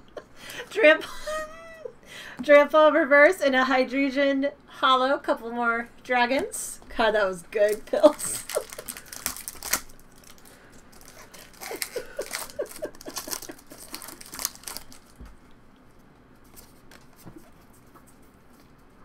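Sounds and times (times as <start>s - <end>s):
foil wrappers crinkling and tearing: 7.6s - 15.2s
cards being handled: 16.4s - 18.8s.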